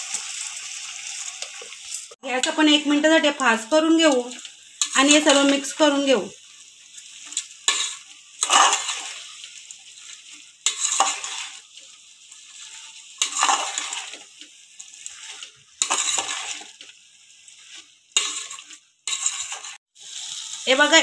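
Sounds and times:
faint sizzling: 0.0s - 21.0s
spatula scraping rice in pot: 7.0s - 16.9s, 17.5s - 19.8s.

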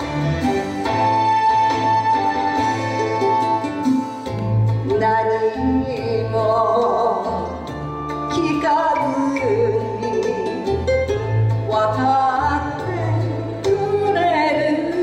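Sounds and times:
instrumental backing with bass: 0.0s - 15.0s
woman singing with vibrato: 4.4s - 10.9s, 11.5s - 15.0s.

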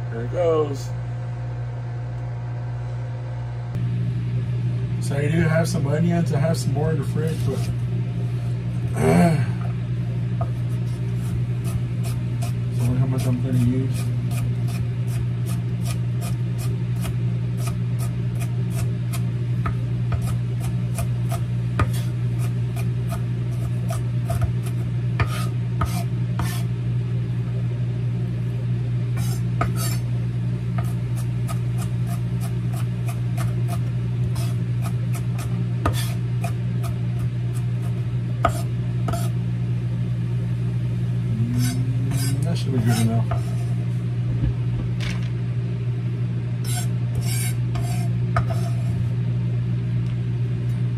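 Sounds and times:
microwave oven humming: 0.0s - 50.9s
knife scraping: 7.0s - 8.6s, 10.4s - 19.3s, 20.1s - 26.7s, 29.1s - 30.1s, 30.8s - 39.4s, 41.4s - 43.9s, 46.6s - 49.2s
knife chopping on wooden board: 11.2s - 26.7s, 29.2s - 30.0s, 30.8s - 39.3s, 41.6s - 43.6s.

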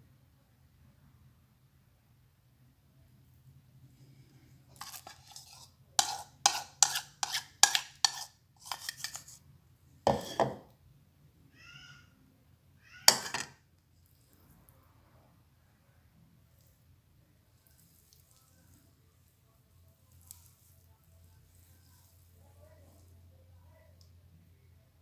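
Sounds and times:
dishes clinking: 10.1s - 10.7s, 13.1s - 13.6s.

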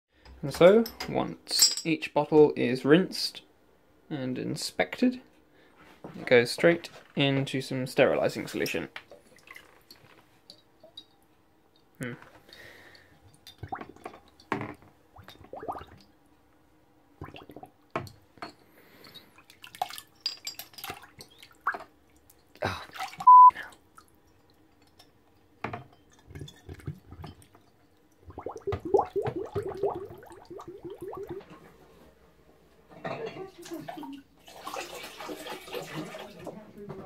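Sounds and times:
bottle gurgling underwater: 15.4s - 16.0s, 28.2s - 31.5s
water sloshing: 28.2s - 31.6s.

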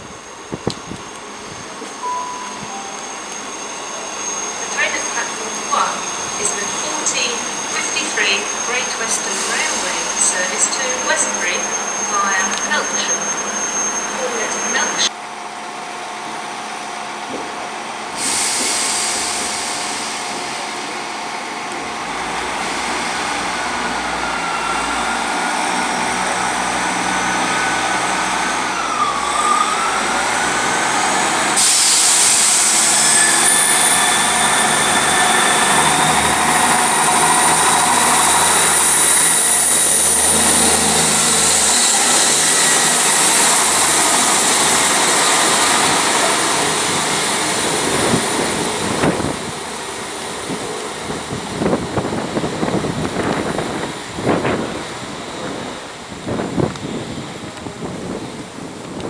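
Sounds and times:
diesel train engines: 0.0s - 59.0s
train wheels on rails: 0.0s - 59.0s.

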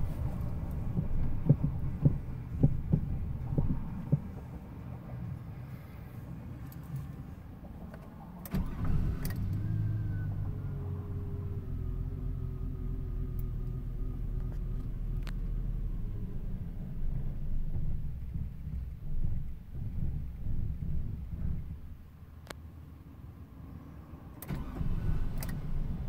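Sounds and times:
engine idling rumble: 0.0s - 26.0s
engine starter click: 8.4s - 10.3s, 24.4s - 26.0s.

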